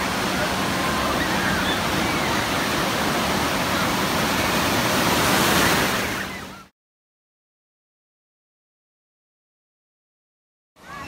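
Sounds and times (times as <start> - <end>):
distant shouts and voices: 0.0 - 4.7, 10.8 - 11.0
ocean surf breaking: 0.0 - 6.7.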